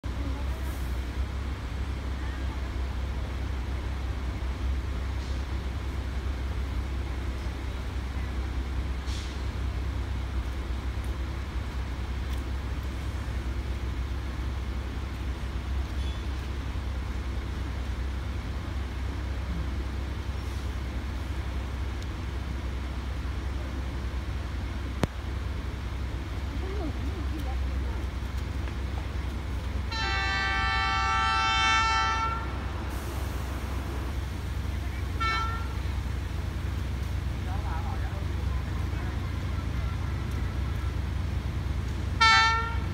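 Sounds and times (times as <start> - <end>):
idling trucks and traffic rumble: 0.0 - 42.9
brief hiss: 9.0 - 9.6, 32.5 - 34.4
locomotive horn blast: 29.8 - 33.5, 35.0 - 36.0, 42.1 - 42.9.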